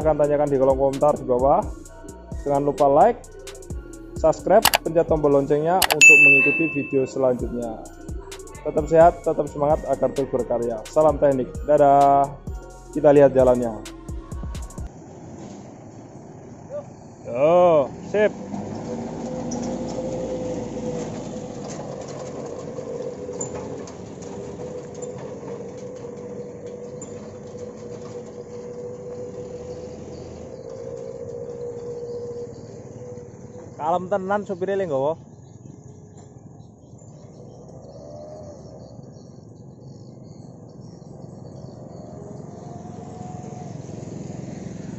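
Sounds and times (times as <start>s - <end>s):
pickup engine droning: 0.0s - 36.1s, 36.8s - 44.9s
insects chirping: 15.8s - 18.8s, 22.6s - 44.9s.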